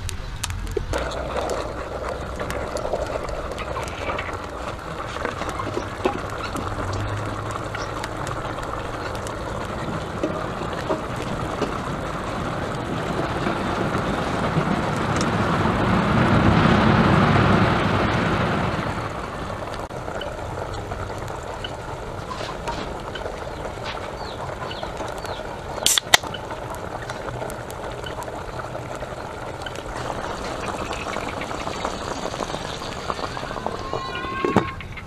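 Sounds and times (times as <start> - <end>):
can opening pop and hiss: 25.8 - 26.3.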